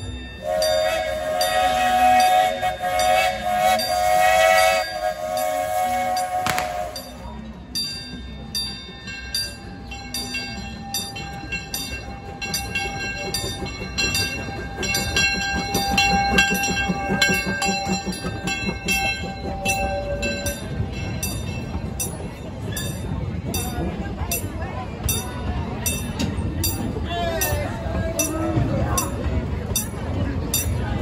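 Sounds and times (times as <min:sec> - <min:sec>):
locomotive bell ringing: 0:00.0 - 0:31.0
steam locomotive chuffing: 0:00.0 - 0:31.0
steam whistle blast: 0:00.4 - 0:07.3.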